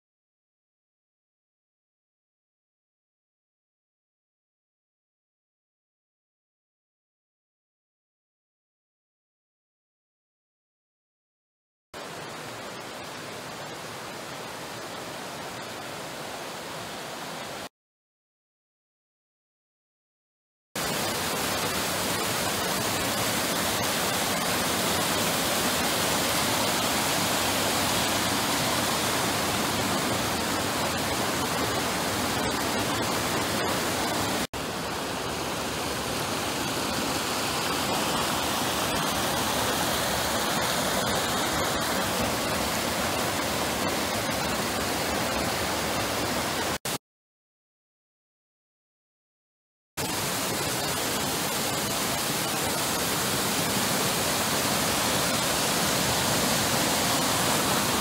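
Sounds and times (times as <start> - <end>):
water rushing over rocks: 12.0 - 17.7, 20.8 - 46.9, 50.0 - 58.0.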